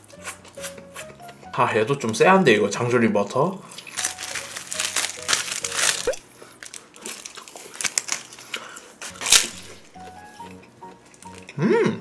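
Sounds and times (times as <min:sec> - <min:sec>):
plastic wrapper crinkling: 0:03.7 - 0:10.4, 0:11.0 - 0:11.5.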